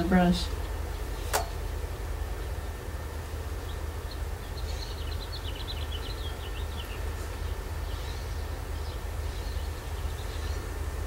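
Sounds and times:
low outdoor rumble: 0:00.0 - 0:11.0
small bird chirping: 0:03.5 - 0:10.9.

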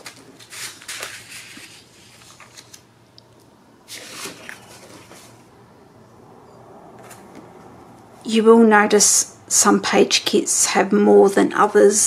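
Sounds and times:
paper sheets rustling: 0:00.0 - 0:02.9, 0:03.8 - 0:05.5.

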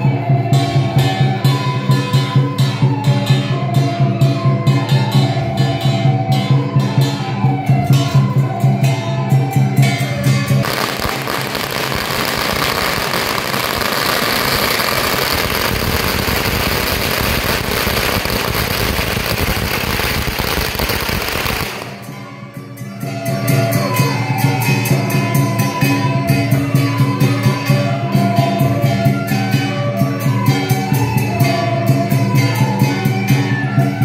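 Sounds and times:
music: 0:00.0 - 0:34.0
firecrackers crackling: 0:10.6 - 0:22.3.

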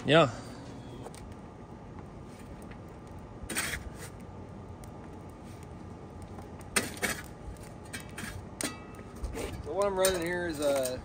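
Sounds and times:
poker clanking in metal firebox: 0:02.2 - 0:11.0.

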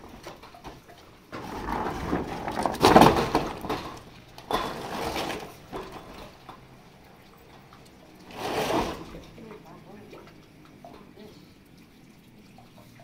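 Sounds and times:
metal sheet scraping and rattling: 0:08.3 - 0:09.3.

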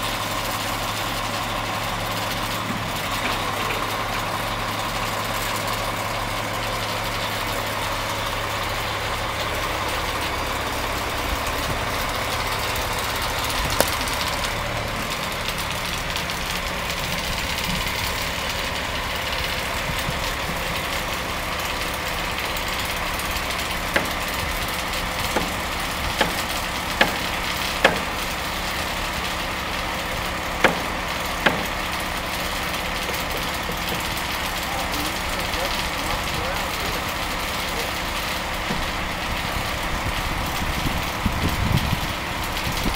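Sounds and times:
crane engine idling: 0:00.0 - 0:42.9
sharp knocks: 0:27.0 - 0:28.1, 0:30.6 - 0:31.8.

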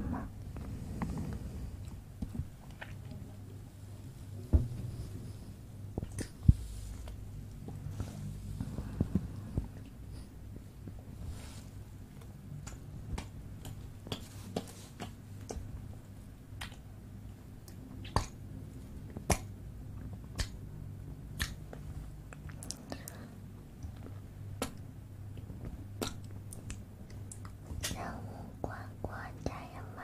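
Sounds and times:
tongue clicks: 0:21.4 - 0:21.6.

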